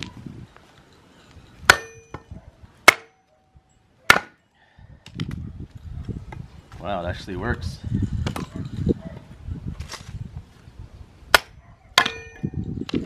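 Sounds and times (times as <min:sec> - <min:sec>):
hammer striking a log: 0:01.7 - 0:03.3, 0:04.1 - 0:04.4, 0:11.3 - 0:12.5
wood splitting: 0:02.8 - 0:03.2, 0:04.1 - 0:04.4, 0:11.3 - 0:12.2.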